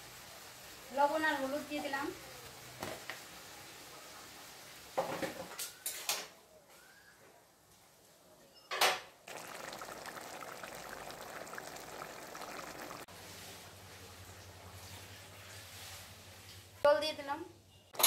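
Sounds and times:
bubbling sizzle of cooking: 0:00.0 - 0:06.2, 0:09.3 - 0:16.7.

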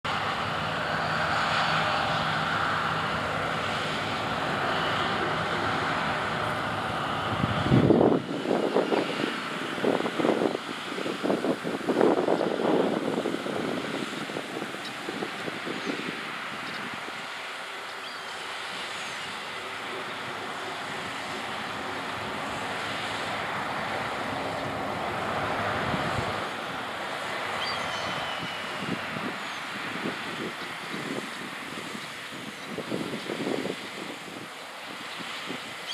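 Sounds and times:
combine harvester droning: 0:00.1 - 0:35.9.

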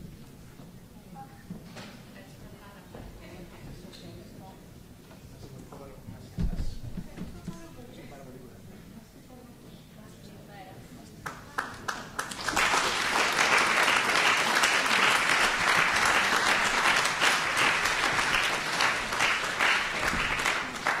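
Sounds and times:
audience applauding: 0:11.5 - 0:21.0.

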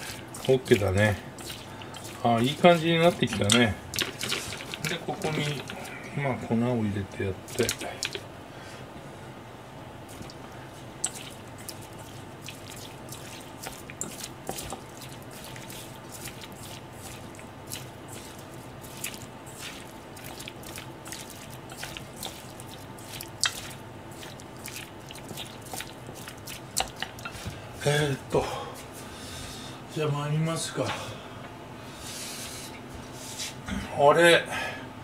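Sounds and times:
wet batter squelches: 0:00.0 - 0:06.3, 0:07.4 - 0:08.3, 0:10.0 - 0:28.2
steady low hum: 0:00.0 - 0:35.0
chopsticks clicking against bowl: 0:03.2 - 0:05.8, 0:23.4 - 0:23.6.

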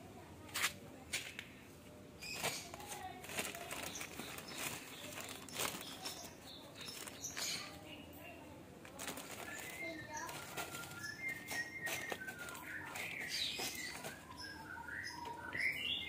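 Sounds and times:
soft rustling: 0:02.2 - 0:08.0, 0:08.8 - 0:14.6.

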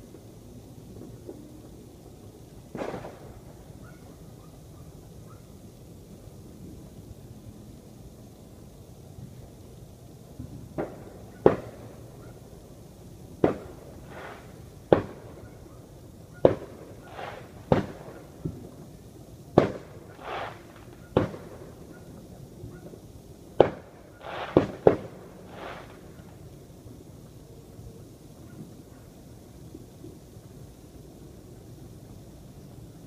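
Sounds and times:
fireworks cracking: 0:00.0 - 0:33.0
dull firework bangs: 0:02.7 - 0:04.0, 0:10.4 - 0:12.0, 0:13.4 - 0:15.6, 0:16.4 - 0:18.8, 0:19.5 - 0:21.9, 0:23.5 - 0:26.0.

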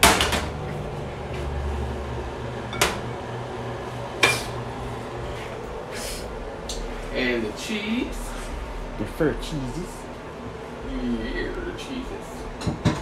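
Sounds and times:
low steady hum: 0:00.0 - 0:13.0
dishes clattering: 0:12.6 - 0:13.0.

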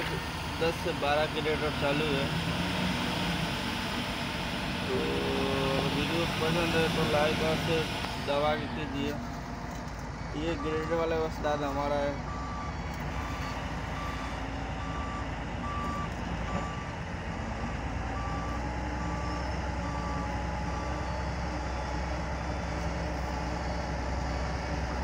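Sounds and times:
diesel engine under load: 0:00.0 - 0:25.0
reversing alarm beeping: 0:04.8 - 0:09.0, 0:10.4 - 0:24.5.

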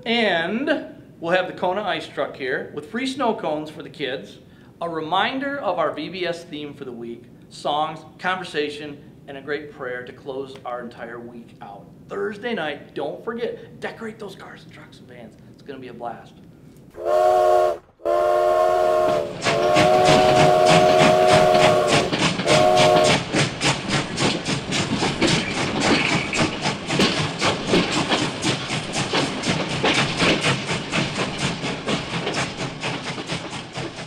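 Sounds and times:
steam locomotive whistle: 0:17.0 - 0:23.4
train chugging: 0:17.0 - 0:34.0.

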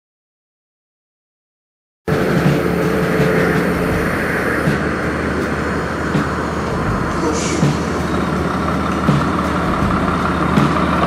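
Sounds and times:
diesel engine idling: 0:02.1 - 0:11.0.

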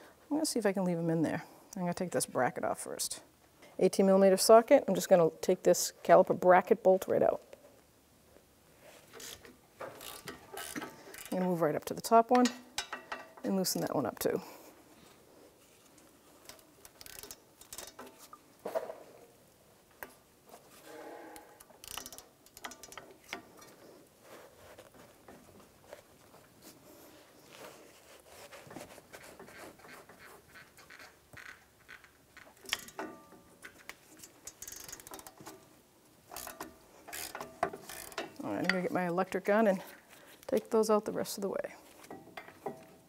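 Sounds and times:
hand ratchet clicking: 0:09.2 - 0:11.4, 0:16.4 - 0:18.2, 0:21.6 - 0:23.8, 0:29.8 - 0:35.6, 0:36.3 - 0:38.7
metal clicks: 0:21.6 - 0:23.8.

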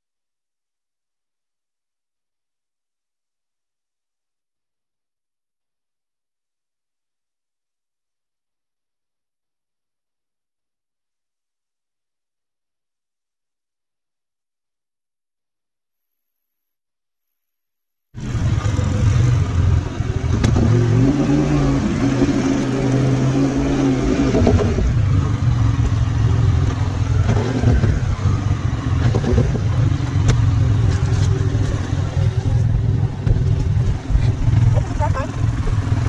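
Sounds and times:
atv engine running: 0:18.2 - 0:36.0.

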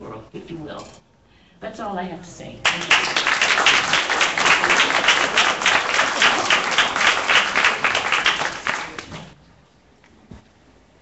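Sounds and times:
audience applauding: 0:02.6 - 0:09.4.

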